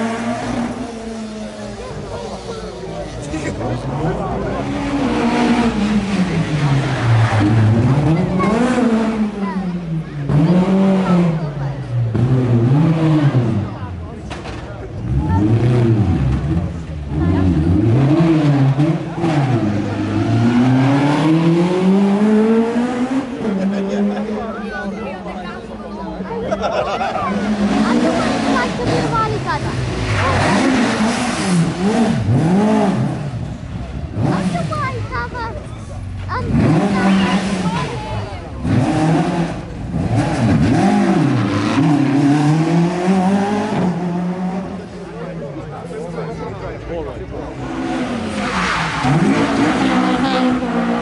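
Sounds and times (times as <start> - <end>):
rally car engine revving: 0.0 - 51.0.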